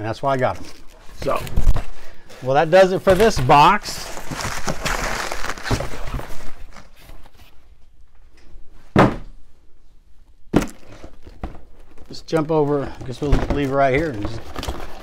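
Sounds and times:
paper packing rustling: 0:00.4 - 0:07.6, 0:10.7 - 0:15.0
cardboard boxes thudding down: 0:03.0 - 0:06.6, 0:08.9 - 0:09.3.

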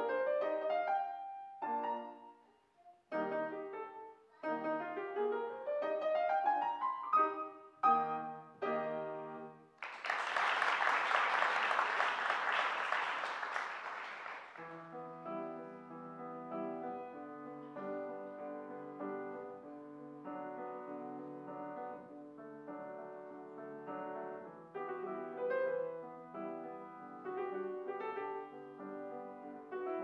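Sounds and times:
grand piano playing: 0:03.1 - 0:09.7, 0:14.6 - 0:30.0.

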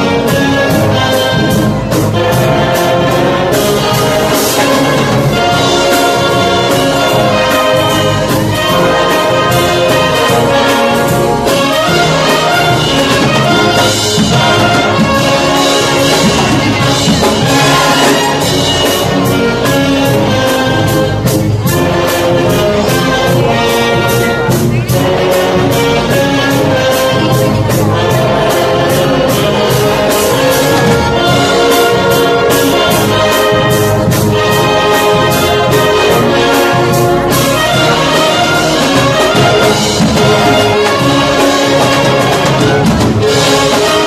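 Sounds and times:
band playing instrumental music: 0:00.0 - 0:44.0.

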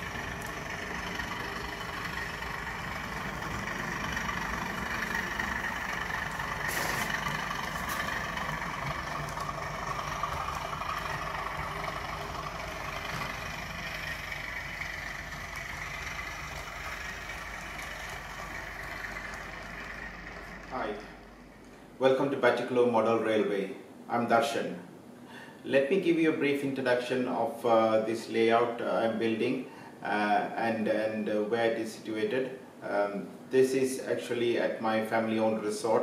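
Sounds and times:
model train running on track: 0:00.0 - 0:21.6.

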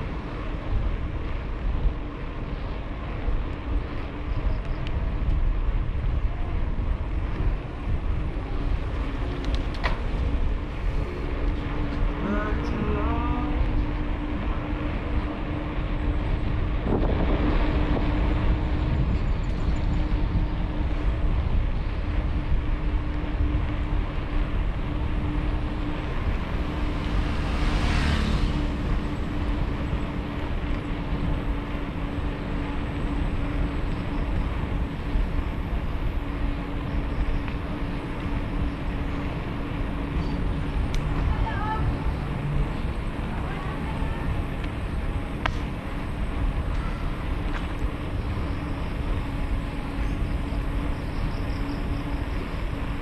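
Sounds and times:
constant hum: 0:00.0 - 0:53.0
road and wind rumble: 0:00.0 - 0:53.0.

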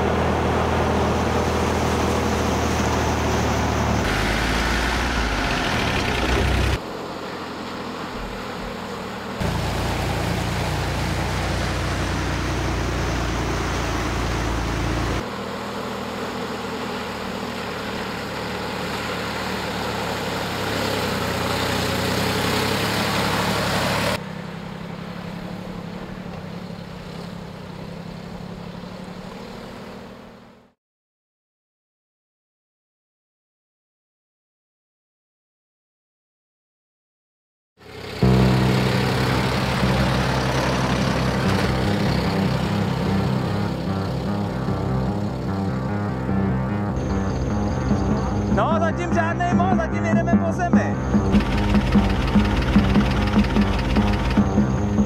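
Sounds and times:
truck engine running: 0:00.0 - 0:30.6, 0:37.8 - 0:55.0
water splashing: 0:01.5 - 0:06.8, 0:08.0 - 0:24.2.

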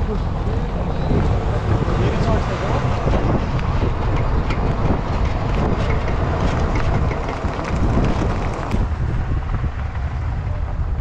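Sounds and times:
vehicle engine and tyre rumble: 0:00.0 - 0:11.0
light rattles and knocks: 0:04.0 - 0:08.9.

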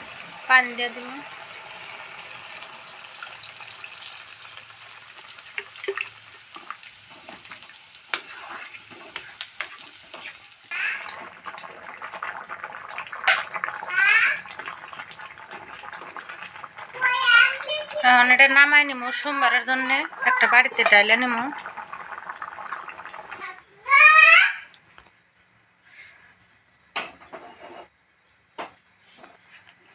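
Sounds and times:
spatula scraping metal pan: 0:06.6 - 0:10.4, 0:27.2 - 0:27.9.

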